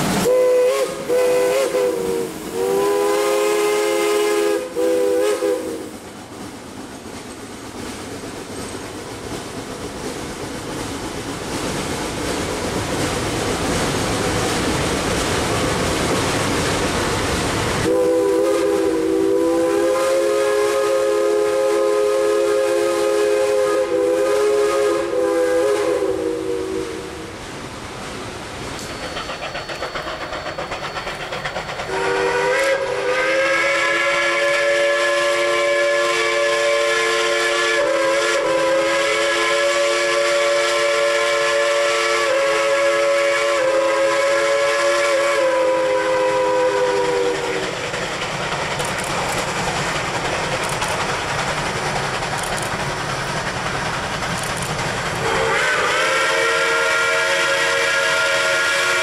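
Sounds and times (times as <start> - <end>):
steam engine exhaust beats: 0.0 - 59.0
steam hiss: 0.0 - 59.0
steam locomotive chime whistle: 0.2 - 6.0, 17.8 - 27.4, 28.8 - 47.8, 54.5 - 59.0.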